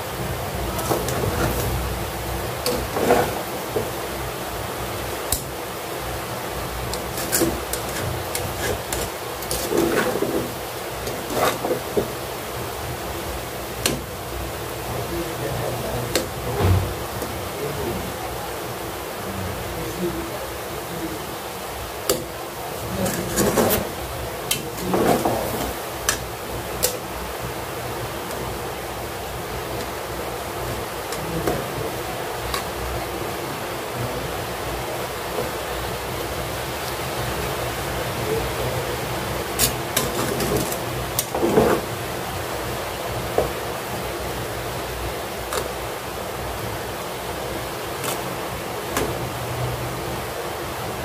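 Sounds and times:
pan hissing: 0.0s - 14.8s
steady background hiss: 0.0s - 51.0s
utensil clinking and scraping pan: 0.6s - 1.8s, 2.6s - 4.0s, 6.8s - 12.2s, 22.8s - 27.0s, 39.6s - 41.9s.

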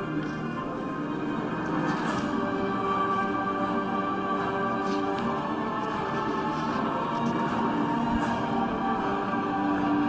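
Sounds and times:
background music with held notes: 0.0s - 10.0s.

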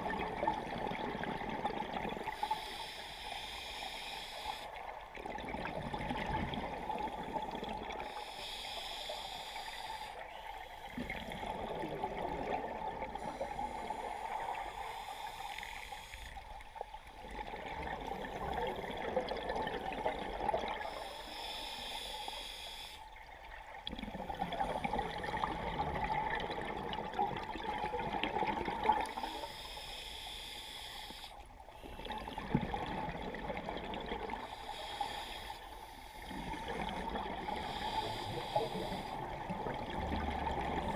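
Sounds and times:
diver inhaling through regulator: 2.3s - 4.7s, 8.0s - 11.6s, 13.2s - 16.4s, 20.8s - 23.1s, 29.0s - 31.4s, 34.4s - 39.5s
gurgling exhaled bubbles: 5.2s - 8.1s, 11.0s - 13.3s, 17.2s - 20.9s, 23.8s - 29.2s, 31.8s - 34.5s, 36.3s - 40.9s.

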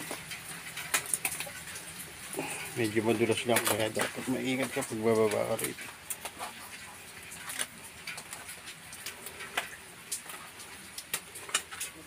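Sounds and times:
footsteps on wet concrete steps: 0.0s - 12.0s.

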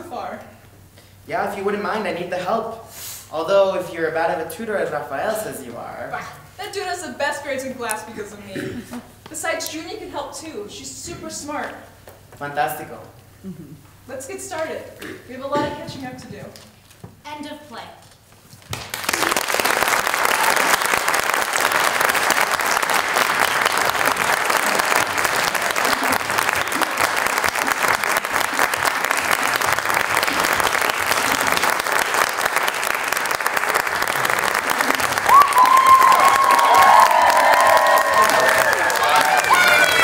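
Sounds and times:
audience applauding: 18.7s - 40.0s.

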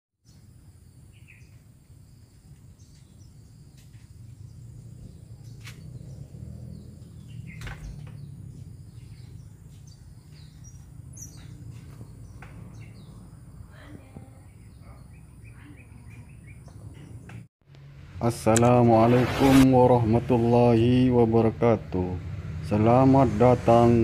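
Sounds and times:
bird chirps: 0.2s - 1.7s, 2.3s - 13.5s, 14.1s - 17.5s
low rumble: 17.7s - 22.8s.

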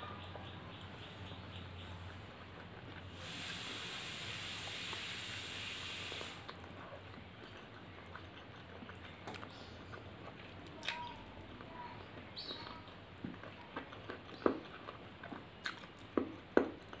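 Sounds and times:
chewing: 0.1s - 17.0s
steady hiss: 3.1s - 6.5s.

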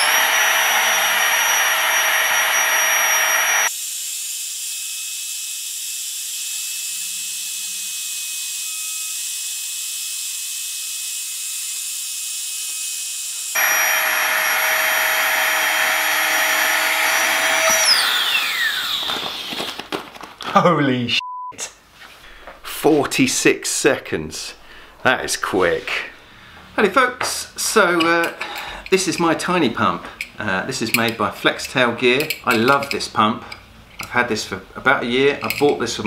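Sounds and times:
air pump whining: 0.0s - 3.7s, 13.6s - 19.9s
pump spinning down: 0.0s - 3.7s, 13.6s - 19.6s.

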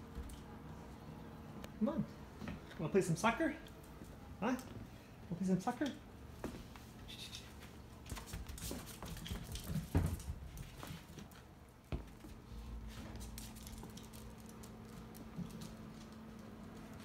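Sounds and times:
paws clicking on hardwood floor: 7.6s - 17.0s.

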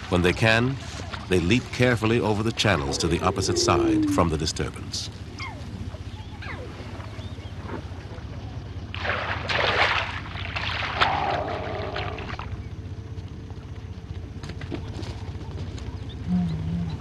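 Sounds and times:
steady low hum: 0.0s - 17.0s
water splashing: 8.9s - 12.4s.

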